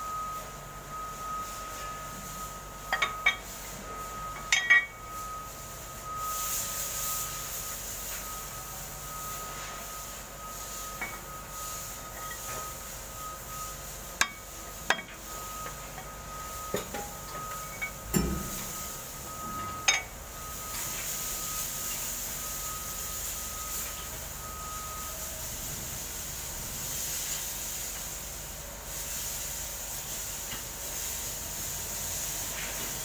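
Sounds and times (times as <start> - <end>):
faint continuous high tone: 0.0 - 32.9
sharp metallic knocks and clinks: 4.4 - 5.0, 16.8 - 18.8.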